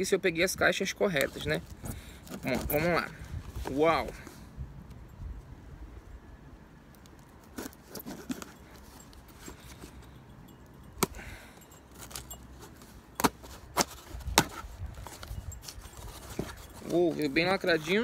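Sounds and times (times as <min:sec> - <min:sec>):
knife slicing tape and cardboard: 0:13.2 - 0:17.3.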